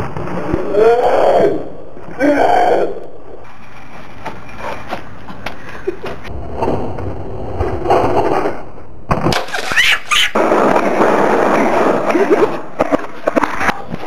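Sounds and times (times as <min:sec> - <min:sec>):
skateboard wheels rolling on concrete: 0:03.3 - 0:14.0.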